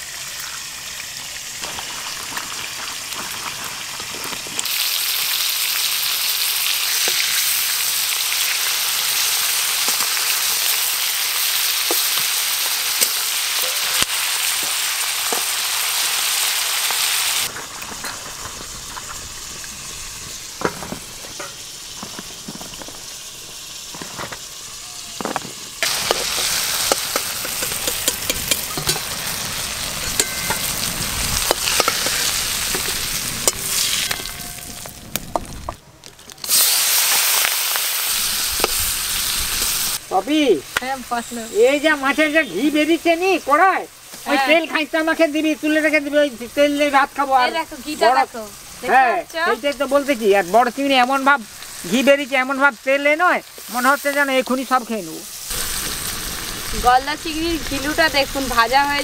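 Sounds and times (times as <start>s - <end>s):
prawns sizzling in oil: 0.0s - 59.0s
metal spatula knocking pan: 30.1s - 30.8s.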